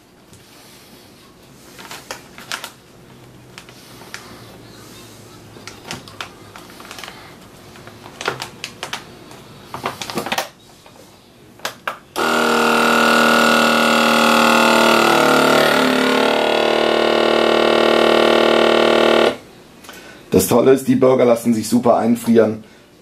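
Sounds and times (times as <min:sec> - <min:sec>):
plastic bag rustling: 0:05.6 - 0:10.2
vacuum pump humming: 0:12.2 - 0:19.7.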